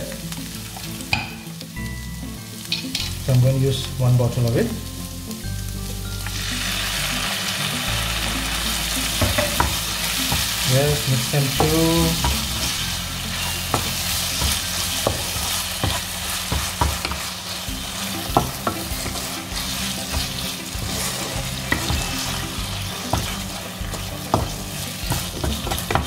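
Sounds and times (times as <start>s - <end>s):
food sizzling in frying pan: 0.0s - 26.0s
spatula tapping pan: 9.1s - 10.8s, 11.5s - 26.0s
spatula scraping pan: 9.1s - 26.0s.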